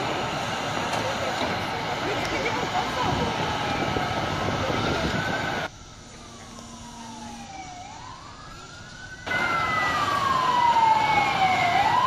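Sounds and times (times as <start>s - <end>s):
street noise: 0.0s - 12.0s
siren wailing: 1.1s - 12.0s
fainter second siren: 2.6s - 12.0s.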